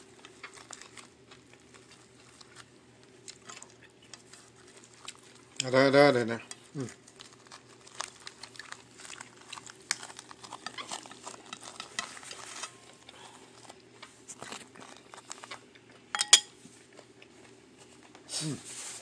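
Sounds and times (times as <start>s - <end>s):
wet eating clicks and crackles: 0.1s - 16.1s
metal spoon clinking ceramic dish: 16.2s - 16.5s.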